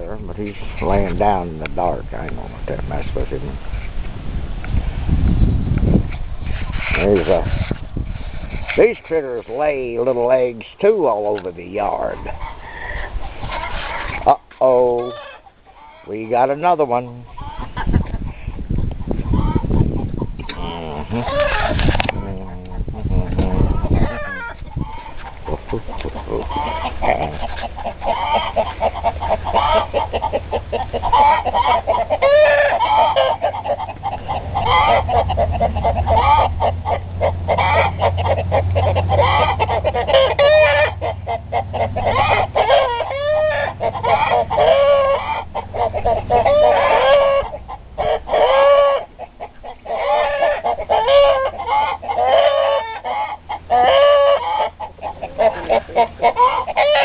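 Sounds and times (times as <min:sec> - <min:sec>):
chickens clucking and calling: 0:00.0 - 0:03.8, 0:04.7 - 0:57.0.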